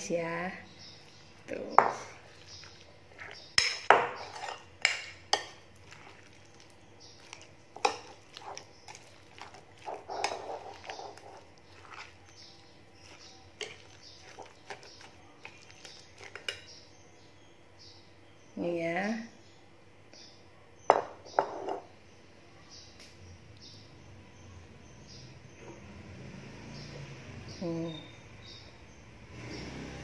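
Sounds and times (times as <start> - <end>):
wet stirring of batter: 0.7 - 17.0.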